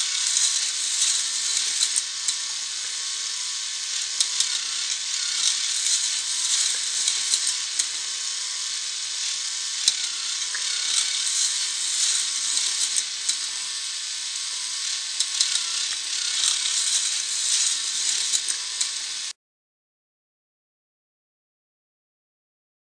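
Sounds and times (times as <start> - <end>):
plastic gears whirring: 0.0 - 19.3.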